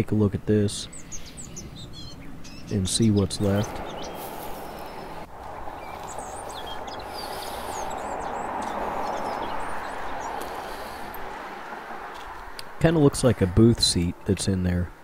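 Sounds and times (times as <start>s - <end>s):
small birds chirping: 0.0s - 12.7s
vehicle passing on road: 0.9s - 13.7s.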